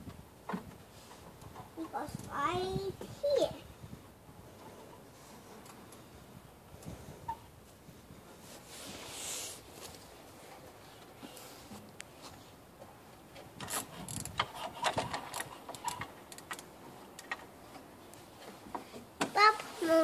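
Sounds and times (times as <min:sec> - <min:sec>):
knocks and clattering on wood: 0:00.0 - 0:01.9, 0:13.3 - 0:19.4
soft rustle: 0:00.7 - 0:14.6, 0:16.8 - 0:20.0.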